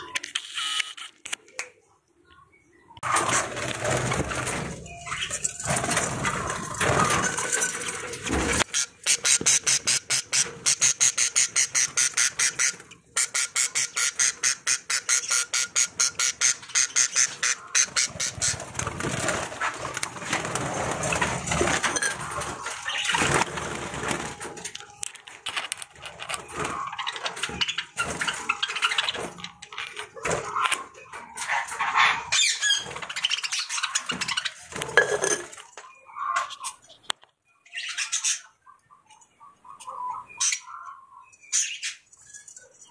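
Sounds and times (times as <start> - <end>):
budgerigars chattering and squawking: 3.0 - 19.9, 20.5 - 24.2, 26.1 - 34.9, 35.5 - 42.9.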